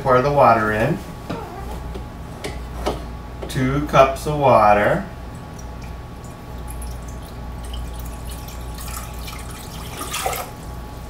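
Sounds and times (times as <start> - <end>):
water trickling into metal pot: 5.4 - 10.6.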